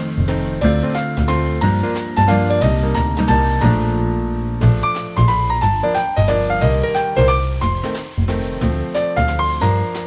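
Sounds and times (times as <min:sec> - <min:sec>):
keyboard melody: 0:00.0 - 0:07.9
steady bass line: 0:00.0 - 0:10.0.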